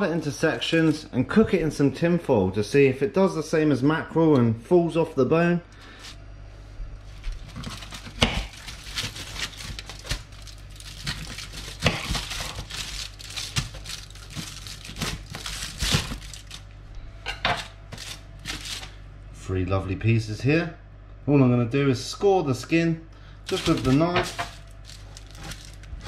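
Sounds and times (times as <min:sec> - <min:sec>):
aluminium foil crinkling: 0:07.2 - 0:16.7, 0:17.5 - 0:19.0, 0:23.5 - 0:26.0.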